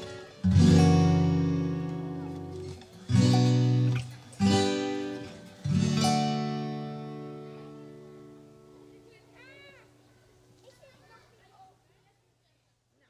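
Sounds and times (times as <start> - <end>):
acoustic guitar strumming chords: 0.0 - 9.2.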